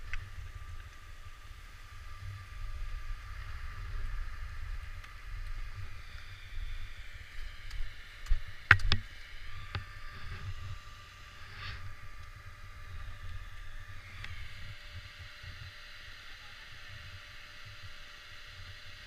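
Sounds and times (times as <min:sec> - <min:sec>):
wind rumble on microphone: 0:00.0 - 0:15.9
sharp clicks and knocks: 0:07.6 - 0:09.1
skis hissing on packed snow: 0:09.4 - 0:14.2.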